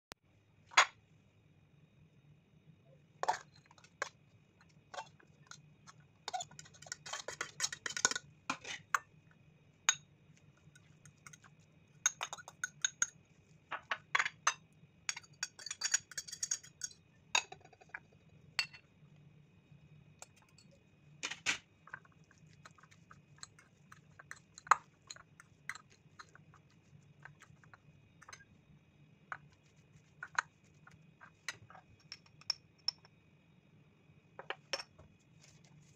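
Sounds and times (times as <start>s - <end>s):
fork scraping ceramic bowls: 4.9s - 9.0s.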